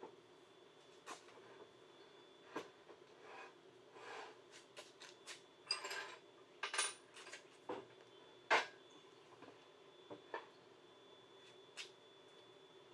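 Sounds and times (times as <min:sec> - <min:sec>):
metal clinking and scraping on table: 0:05.7 - 0:07.4.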